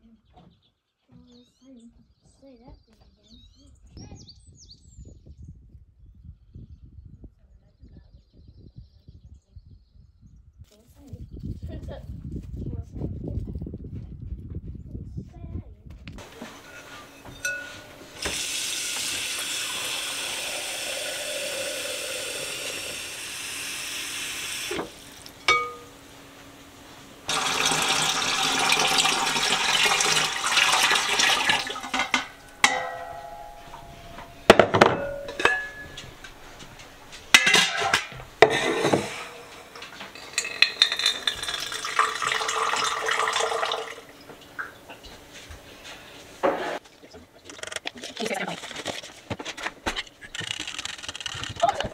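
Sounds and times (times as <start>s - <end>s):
metal lid clanking: 16.2s - 18.6s, 24.7s - 26.1s, 29.5s - 41.7s
water pouring: 16.2s - 26.0s, 27.2s - 33.9s, 38.4s - 44.8s
water running from faucet: 16.2s - 26.0s, 27.2s - 32.6s, 39.2s - 44.7s
glass clink: 16.3s - 18.4s, 25.4s - 26.0s, 31.3s - 36.4s, 37.3s - 42.6s.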